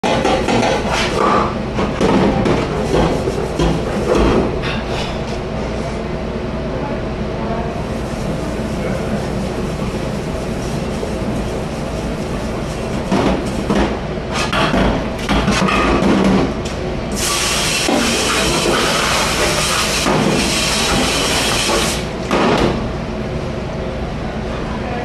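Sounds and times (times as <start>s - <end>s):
dishes clanking and knocking: 0.0s - 5.4s, 13.0s - 16.6s.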